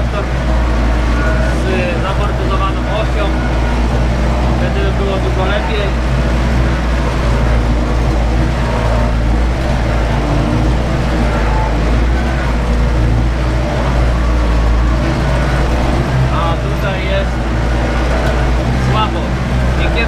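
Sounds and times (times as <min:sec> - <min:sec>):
tractor diesel engine under load: 0:00.0 - 0:20.0.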